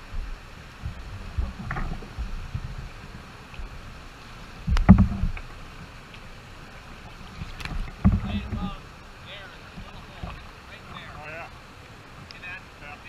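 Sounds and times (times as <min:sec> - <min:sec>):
water slapping kayak hull: 0:00.0 - 0:13.0
whitewater river running: 0:00.0 - 0:13.0
sharp knocks: 0:04.7 - 0:05.4, 0:07.6 - 0:08.8.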